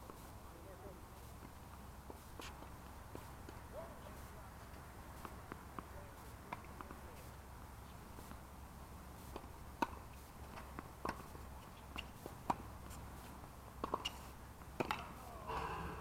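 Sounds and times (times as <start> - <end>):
low outdoor background: 0.0 - 16.0
tennis balls bouncing and hit: 9.3 - 13.0, 13.8 - 16.0.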